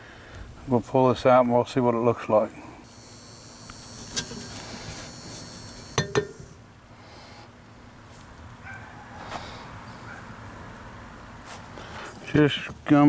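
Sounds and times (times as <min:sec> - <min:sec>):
metal scraping slide: 0:03.8 - 0:06.6.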